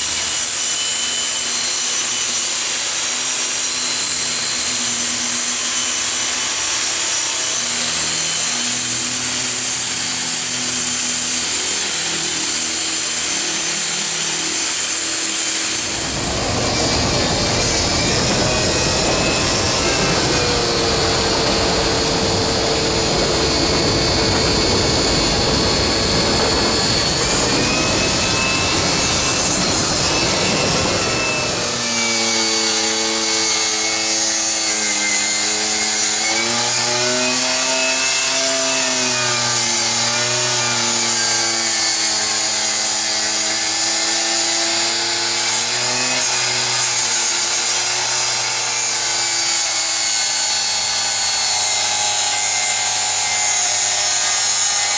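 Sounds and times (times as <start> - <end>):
angle grinder grinding metal: 0.1 - 54.9.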